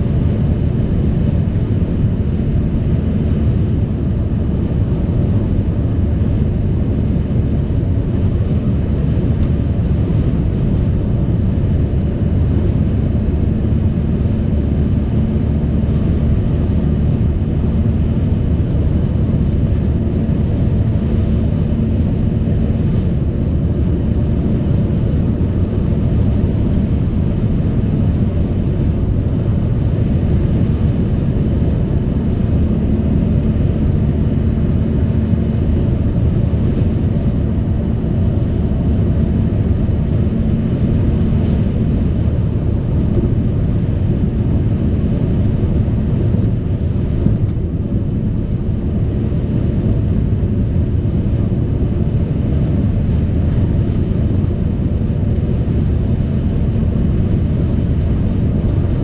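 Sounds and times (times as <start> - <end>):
car tyre and engine rumble: 0.0 - 59.0.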